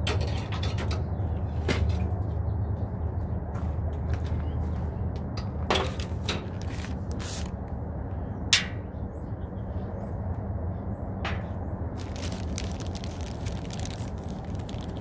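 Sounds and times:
paint can and plastic bag handling: 12.0s - 15.0s.

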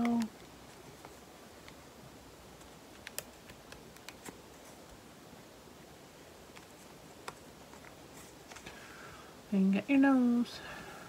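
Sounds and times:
soft fabric rustling: 4.1s - 5.2s, 6.1s - 9.1s.

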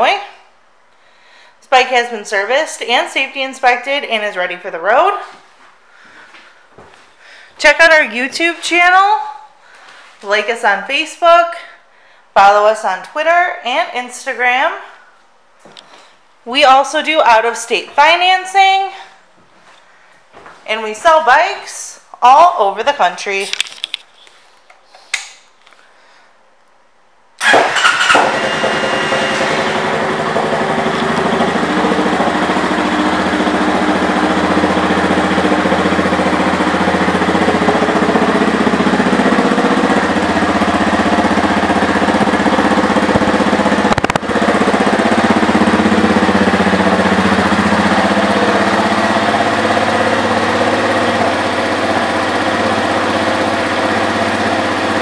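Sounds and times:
motorcycle engine starting and idling: 27.4s - 55.0s.

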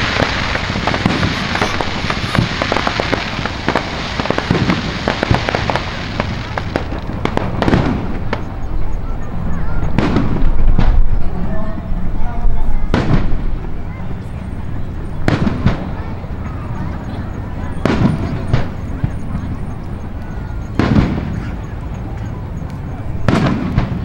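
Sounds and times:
firework booms: 0.0s - 8.7s, 9.8s - 11.3s, 12.8s - 14.1s, 15.2s - 16.1s, 17.6s - 19.5s, 20.7s - 21.7s, 23.2s - 24.0s
fireworks crackling and popping: 0.0s - 12.0s, 12.6s - 24.0s.

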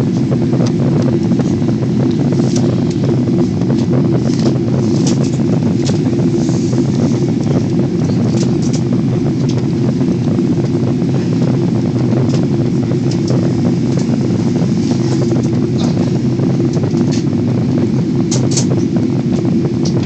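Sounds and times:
airliner cabin engine rumble: 0.0s - 20.0s.

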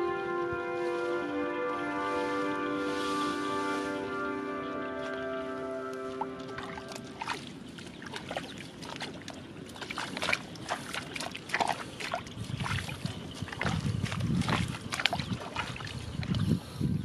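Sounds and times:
bare feet splashing in mud: 6.1s - 16.4s.

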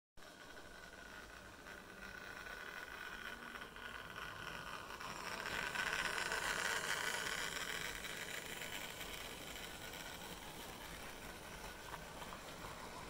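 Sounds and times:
model train motor whining: 0.2s - 13.0s
wheels rattling on rails: 0.2s - 13.0s.

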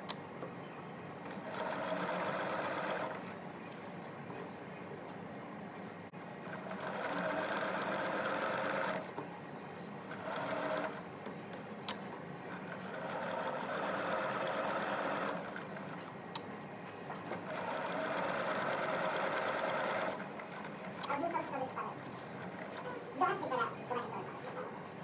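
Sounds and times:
electric sewing machine stitching: 1.3s - 3.3s, 6.5s - 9.1s, 10.1s - 11.0s, 12.5s - 15.8s, 17.4s - 21.1s.

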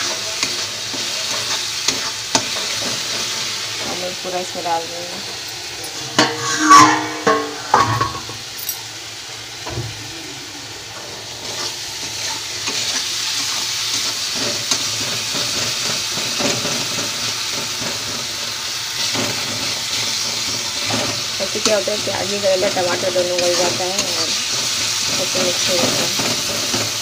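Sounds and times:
spatula scraping and stirring: 0.0s - 3.5s, 11.4s - 17.1s
food sizzling in oil: 0.0s - 27.0s
metal clanks: 5.8s - 8.8s.

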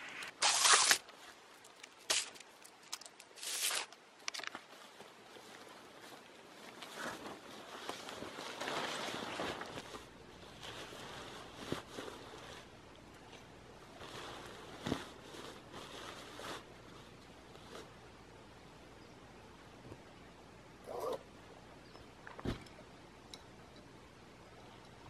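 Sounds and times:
tarp fabric rustling and flapping: 0.0s - 2.5s, 3.4s - 12.8s, 13.8s - 17.9s
rustle of gear being packed: 0.1s - 12.8s.

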